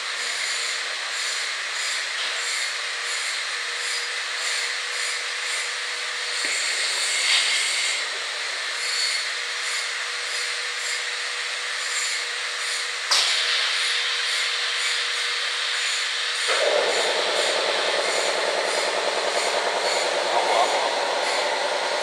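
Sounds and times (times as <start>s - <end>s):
faint machine hum: 16.3s - 22.0s.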